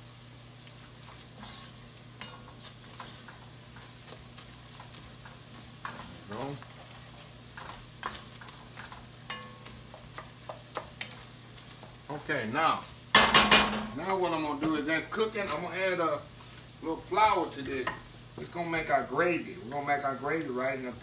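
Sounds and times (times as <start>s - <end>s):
onions sizzling in a pot: 0.0s - 21.0s
wooden spoon scraping a pot: 0.8s - 12.0s.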